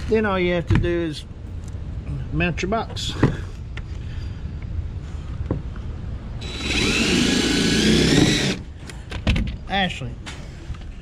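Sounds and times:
cordless power driver whine: 6.4s - 8.7s.

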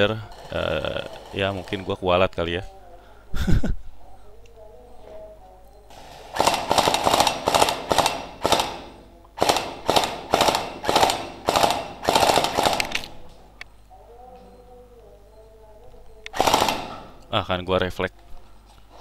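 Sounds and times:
gel blaster full-auto shots: 6.4s - 13.0s, 16.4s - 17.0s.

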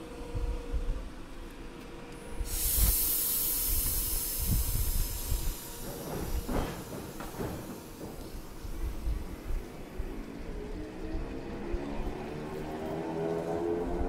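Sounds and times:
train air brake venting hiss: 2.2s - 9.2s.

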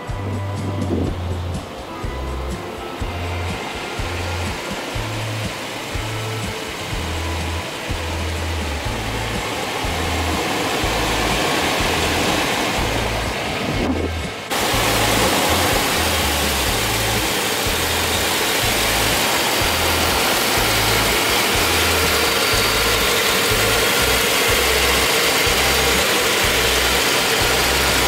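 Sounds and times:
background music with bass line: 0.0s - 28.0s
truck engine running: 0.0s - 28.0s.

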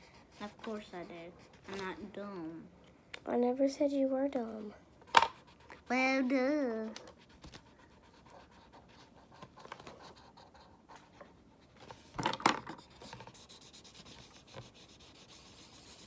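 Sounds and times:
marker scratching on paper: 0.0s - 2.1s, 7.2s - 11.2s, 12.6s - 16.0s.

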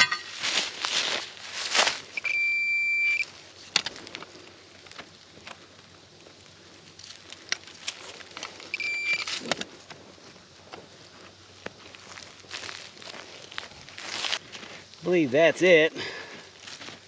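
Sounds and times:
soil and leaves scraping: 0.0s - 2.2s, 3.2s - 17.0s
metal detector beeping: 2.1s - 3.3s, 8.7s - 9.5s.

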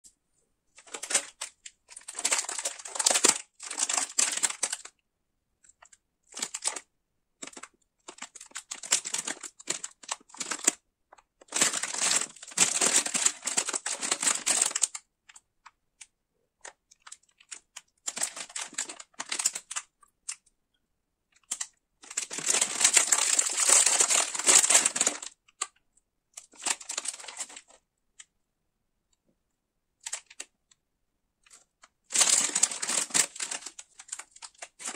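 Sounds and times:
plastic wrapper crinkling: 0.8s - 4.9s, 5.8s - 15.4s, 16.6s - 20.4s, 21.4s - 25.8s, 26.4s - 27.8s, 31.4s - 34.9s.

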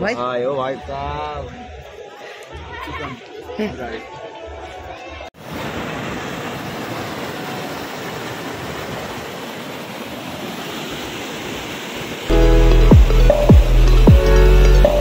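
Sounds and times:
waterfall rushing: 5.4s - 15.0s
loud music with heavy bass: 12.3s - 15.0s.

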